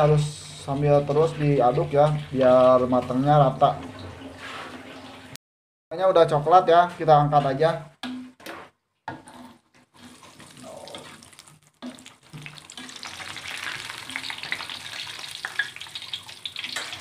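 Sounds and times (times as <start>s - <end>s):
peanuts sizzling in hot oil: 10.0s - 17.0s.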